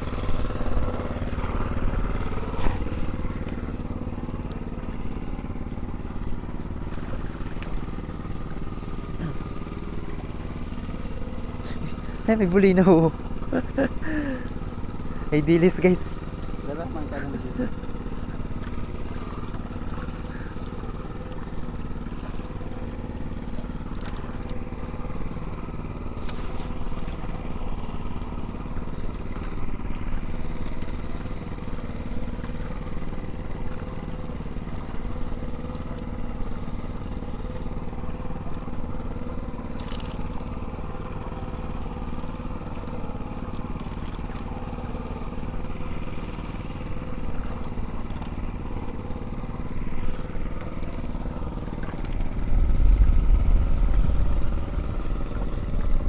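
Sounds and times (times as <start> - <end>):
small engine running: 0.0 - 56.0.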